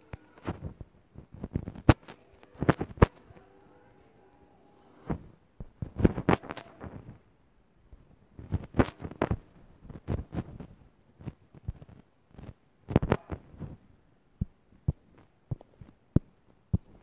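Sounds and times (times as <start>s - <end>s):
fingertips tapping touchscreen: 1.5s - 6.8s.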